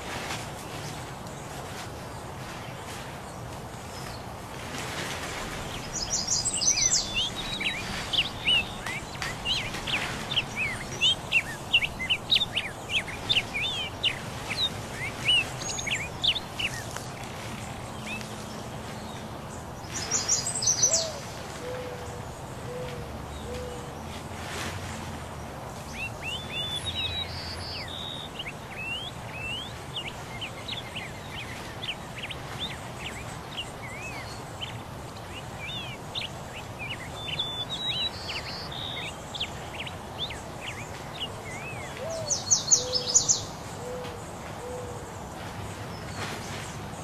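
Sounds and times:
wild birds chirping: 0:00.0 - 0:47.0
low hoot-like bird calls: 0:20.8 - 0:23.9, 0:41.9 - 0:43.2, 0:43.8 - 0:45.2.

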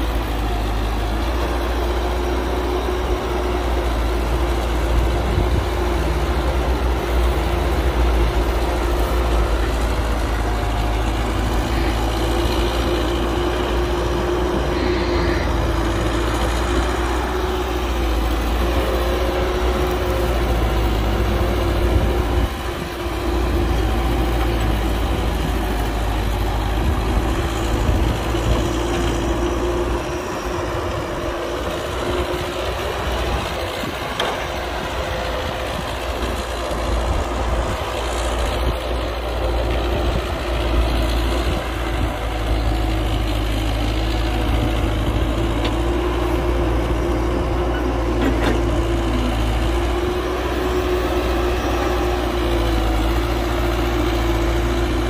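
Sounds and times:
heavy diesel engine running: 0:00.0 - 0:55.0.

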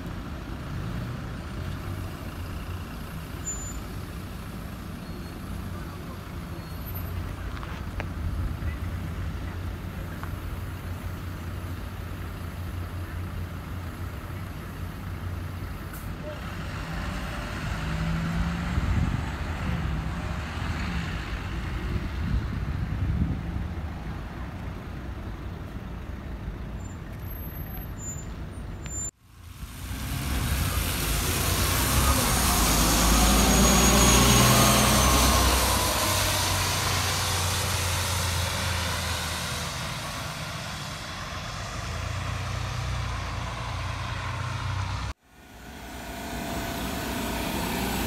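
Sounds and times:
bus diesel engines: 0:00.0 - 0:48.0
tyres hissing on wet road: 0:00.7 - 0:21.8, 0:29.2 - 0:48.0.

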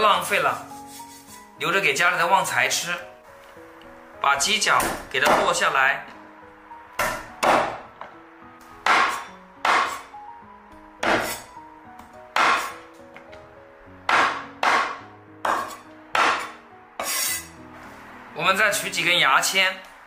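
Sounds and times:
soft background music: 0:00.0 - 0:20.0
cleaver chopping onto wooden board: 0:07.0 - 0:07.8, 0:08.8 - 0:10.0, 0:11.0 - 0:11.5, 0:12.4 - 0:12.8, 0:14.1 - 0:16.5.

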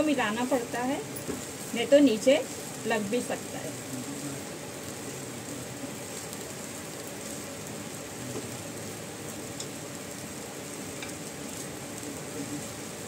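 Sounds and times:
food sizzling in a pan: 0:00.0 - 0:13.0
spatula stirring in a pan: 0:05.8 - 0:13.0.

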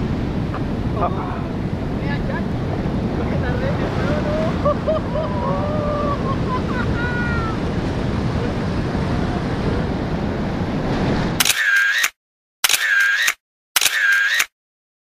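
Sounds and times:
surf: 0:00.0 - 0:11.4
wind on microphone: 0:00.0 - 0:11.4
camera shutter sound effects: 0:11.4 - 0:14.6.

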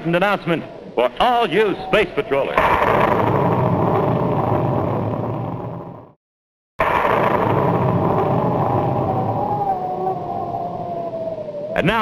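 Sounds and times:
faint high whine sliding down: 0:08.0 - 0:11.9.

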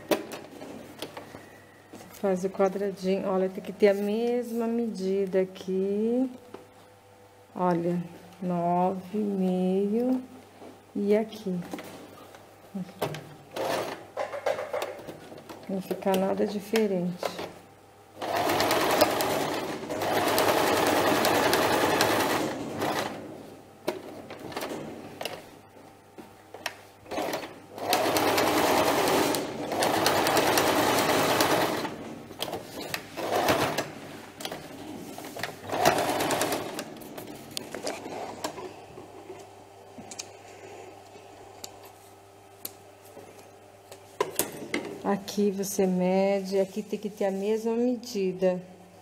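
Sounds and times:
sewing machine stitching: 0:18.2 - 0:23.2, 0:27.1 - 0:33.9, 0:35.6 - 0:37.0.

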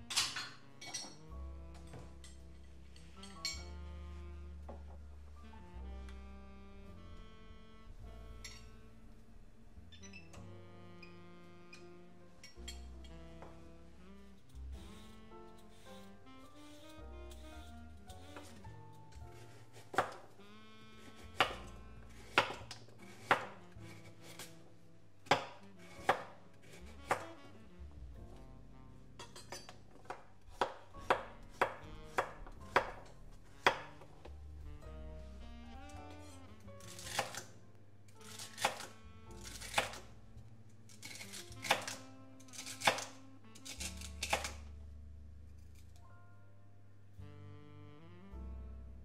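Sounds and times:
soft background music: 0:00.0 - 0:49.0
knife chopping on cutting board: 0:19.4 - 0:20.2, 0:21.0 - 0:24.4, 0:25.3 - 0:27.2, 0:29.5 - 0:33.0, 0:33.6 - 0:34.0, 0:36.8 - 0:37.4, 0:38.3 - 0:38.9, 0:39.5 - 0:40.0, 0:41.0 - 0:44.6.

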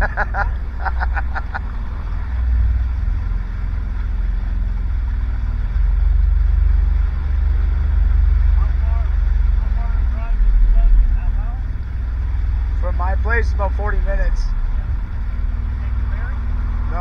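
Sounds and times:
jet ski engine running: 0:00.0 - 0:17.0.

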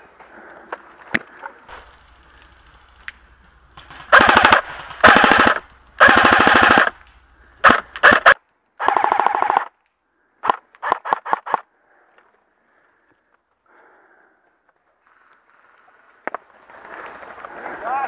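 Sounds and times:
airsoft rifle firing bursts: 0:03.8 - 0:07.0, 0:07.6 - 0:09.7, 0:10.4 - 0:11.6.

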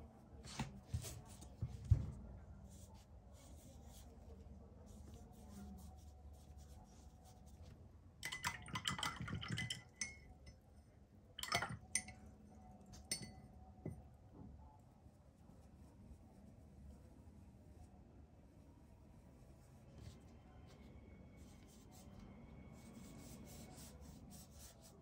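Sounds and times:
brush clinking against glass cup: 0:08.2 - 0:10.6, 0:11.4 - 0:12.3, 0:12.9 - 0:14.0.

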